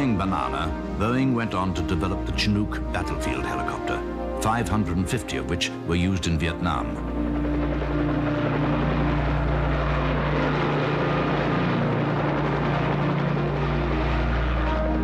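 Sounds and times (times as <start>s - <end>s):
helicopter rotor and engine noise: 3.0s - 15.0s.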